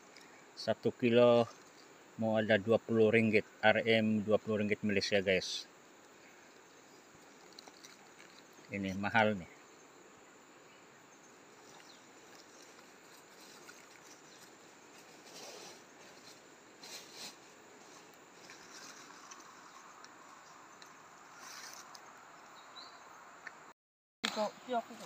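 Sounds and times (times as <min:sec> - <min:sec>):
faint steady hiss: 0:00.0 - 0:25.0
soft rustles: 0:11.6 - 0:19.8.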